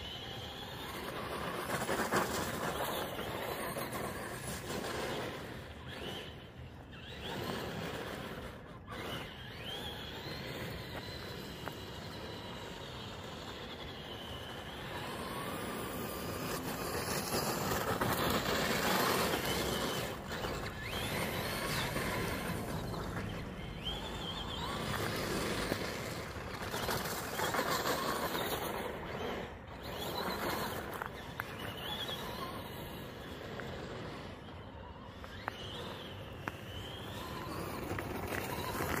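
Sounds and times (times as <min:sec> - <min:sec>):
electric motor whining: 0:00.0 - 0:39.0
tyres crunching on gravel: 0:35.3 - 0:39.0.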